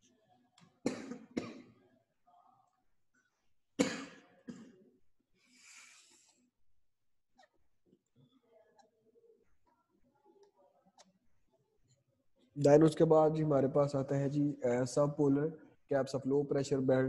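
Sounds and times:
person coughing: 0:00.9 - 0:01.8, 0:03.8 - 0:04.8.

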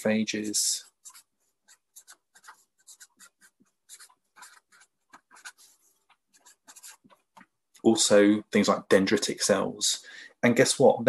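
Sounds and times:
marker writing on paper: 0:00.8 - 0:07.5.

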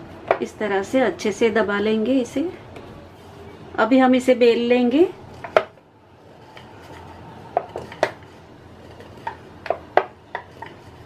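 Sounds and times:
rolling pin rolling dough: 0:04.7 - 0:11.0
rolling pin knocking on board: 0:09.2 - 0:10.7.

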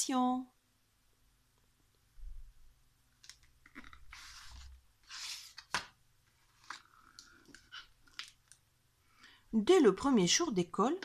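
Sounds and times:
book page swishing: 0:04.0 - 0:06.9.

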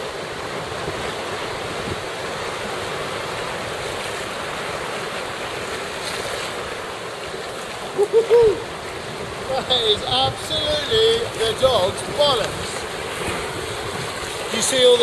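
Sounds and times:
surf rushing between rocks: 0:00.0 - 0:15.0
loud whooping cries: 0:08.0 - 0:08.7.

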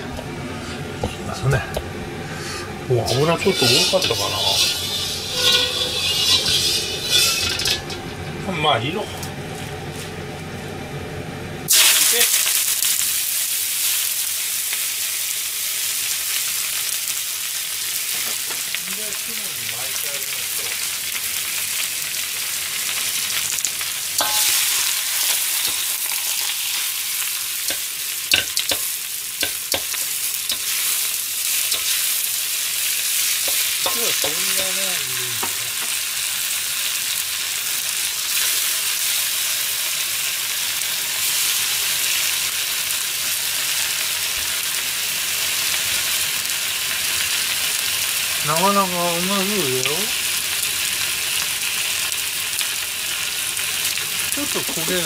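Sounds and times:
food frying sizzle: 0:00.0 - 0:55.0
utensil knocking pan: 0:03.4 - 0:08.2, 0:24.2 - 0:30.8, 0:33.4 - 0:34.7, 0:35.4 - 0:36.0.

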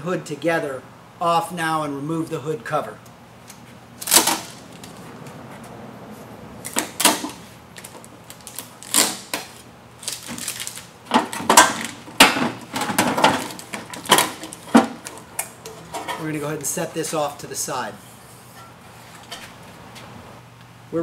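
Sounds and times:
tape peeling: 0:03.4 - 0:05.7, 0:06.6 - 0:16.2.

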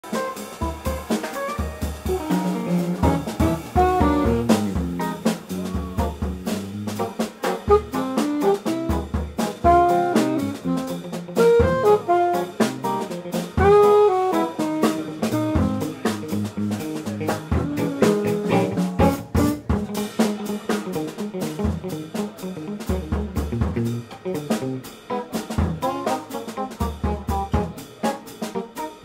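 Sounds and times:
drum kit: 0:00.0 - 0:29.0
electric guitar: 0:00.0 - 0:29.0
alto saxophone melody: 0:00.1 - 0:16.5, 0:17.5 - 0:19.7.

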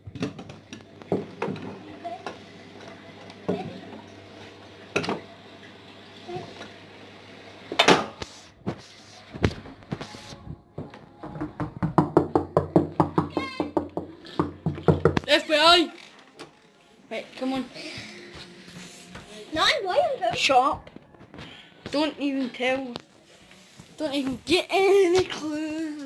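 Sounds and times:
fist knocking on wooden door: 0:11.2 - 0:15.2.

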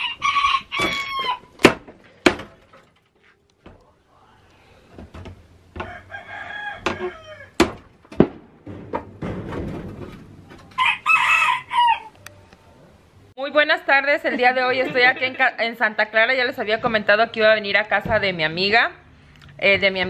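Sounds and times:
rooster crowing: 0:00.0 - 0:01.5, 0:05.8 - 0:07.6, 0:10.7 - 0:12.5.

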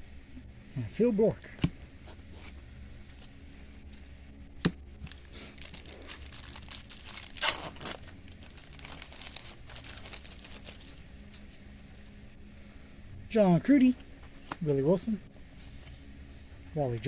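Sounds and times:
plastic wrapper tearing and crinkling: 0:05.0 - 0:11.4.

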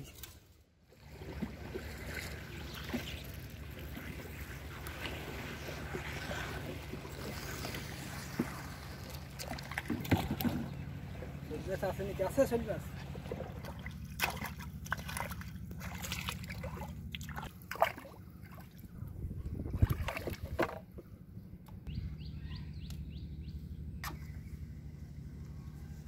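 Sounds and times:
pond water splashing: 0:00.2 - 0:19.0, 0:19.6 - 0:20.9
steady low hum: 0:01.0 - 0:26.0.

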